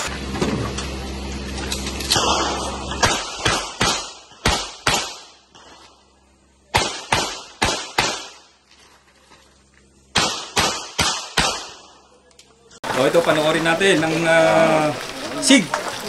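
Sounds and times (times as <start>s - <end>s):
pistol shots: 2.1s - 5.8s, 6.7s - 8.6s, 10.1s - 12.0s.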